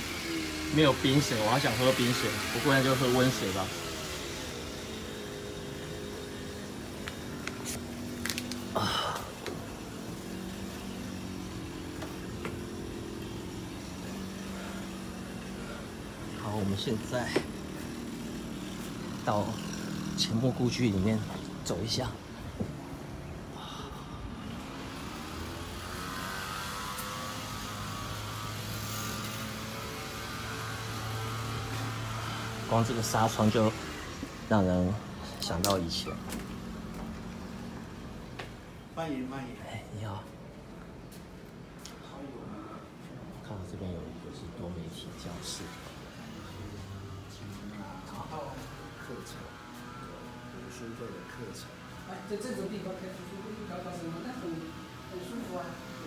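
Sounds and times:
low mechanical drone: 0.0s - 56.0s.

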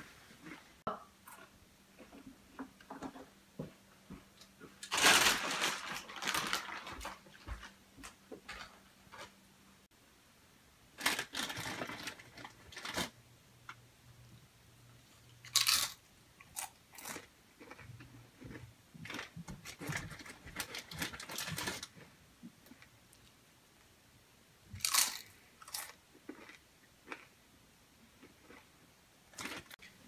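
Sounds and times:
person crunching chips: 15.4s - 22.0s, 24.8s - 27.3s.

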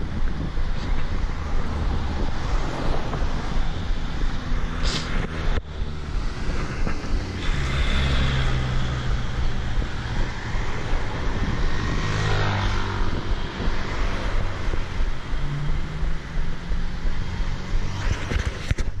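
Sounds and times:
road traffic: 0.0s - 19.0s
vehicle passing close by: 0.5s - 18.7s.

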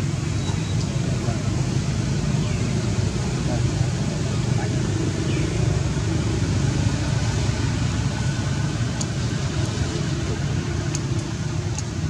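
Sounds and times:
low outdoor rumble: 0.0s - 12.0s
faint high ticks: 10.9s - 11.9s.

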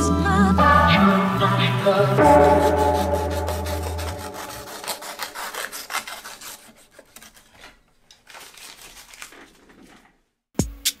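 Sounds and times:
knife blade scraping wood: 2.3s - 7.8s.

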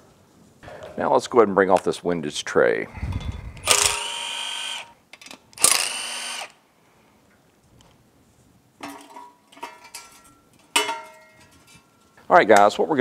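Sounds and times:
cordless driver motor whine: 3.6s - 4.9s, 5.6s - 6.5s.

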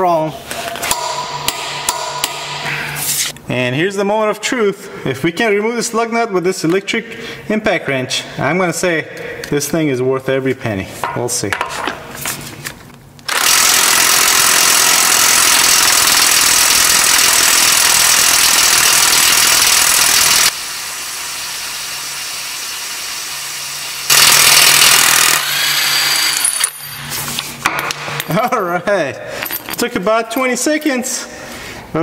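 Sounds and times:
impact wrench hammering: 0.6s - 2.7s, 13.3s - 20.6s, 21.8s - 27.0s.

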